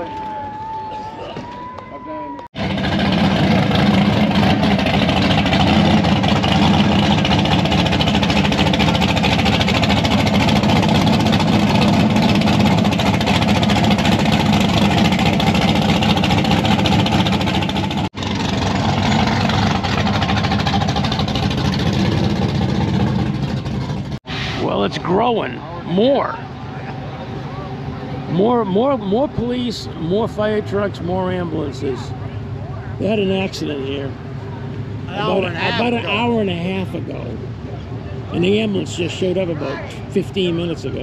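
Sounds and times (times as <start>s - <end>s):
drag car engine idling: 2.6s - 24.2s.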